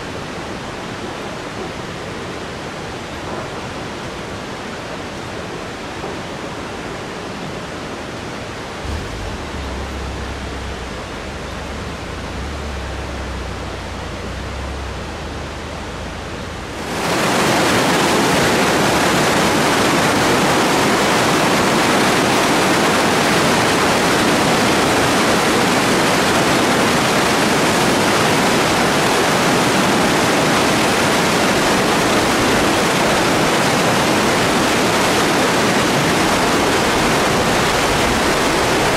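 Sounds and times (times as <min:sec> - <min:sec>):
rushing mountain water: 0:00.0 - 0:38.9
low rumble: 0:08.8 - 0:16.9.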